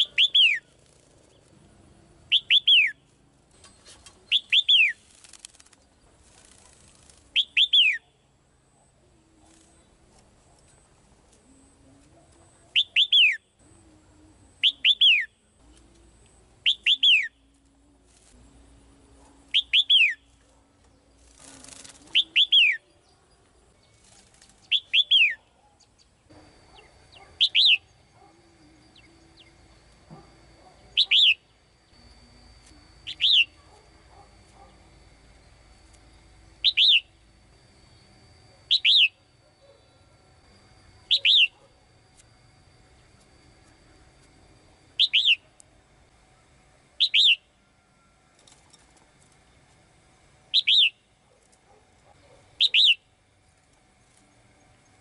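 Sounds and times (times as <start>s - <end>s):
wing flutter rustle: 0.0s - 8.0s, 9.0s - 12.8s, 17.4s - 25.5s, 48.3s - 49.9s, 50.8s - 52.5s, 53.3s - 54.7s.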